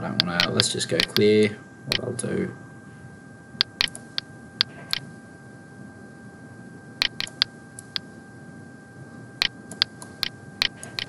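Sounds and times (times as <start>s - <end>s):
computer mouse clicking: 0.2s - 1.3s, 3.6s - 5.0s, 7.0s - 8.0s, 9.4s - 11.0s.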